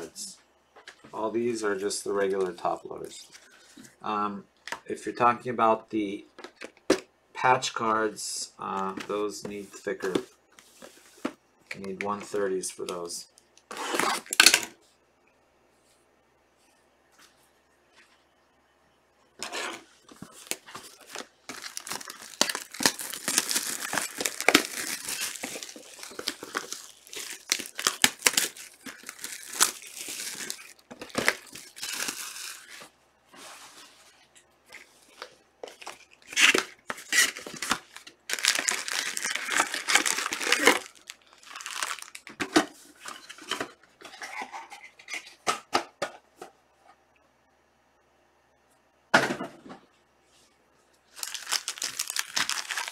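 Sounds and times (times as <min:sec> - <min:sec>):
wrappers tearing and rustling: 0:13.7 - 0:14.7, 0:19.4 - 0:32.9, 0:34.7 - 0:43.6, 0:51.1 - 0:52.9.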